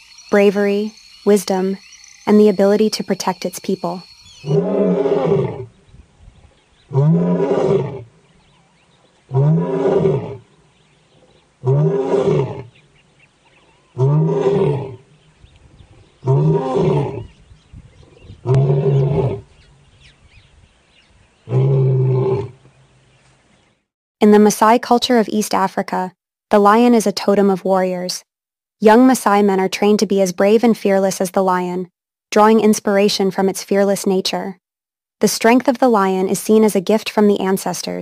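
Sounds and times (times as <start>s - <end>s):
lion roaring: 4.4s - 5.8s, 6.9s - 8.1s, 9.3s - 10.5s, 11.1s - 12.8s, 13.9s - 15.1s, 16.2s - 17.4s, 18.0s - 19.5s, 21.5s - 22.6s.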